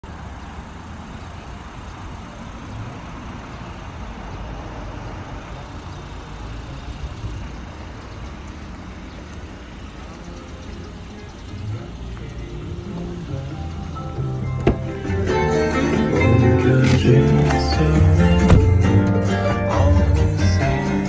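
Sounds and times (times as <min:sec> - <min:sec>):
vehicle rumble with hiss: 0:00.0 - 0:21.0.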